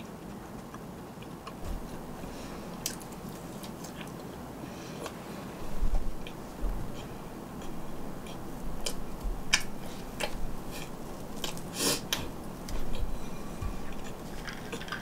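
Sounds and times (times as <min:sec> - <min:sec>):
chewing: 0:02.7 - 0:05.2, 0:06.2 - 0:15.0.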